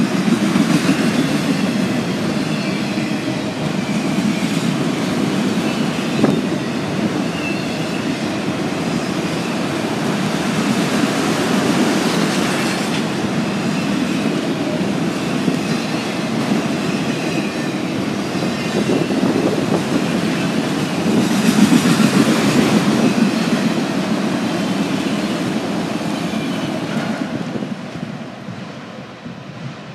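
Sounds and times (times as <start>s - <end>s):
freight train wheels rumbling on rail: 0.0s - 29.9s
high wheel squeal: 5.6s - 9.6s.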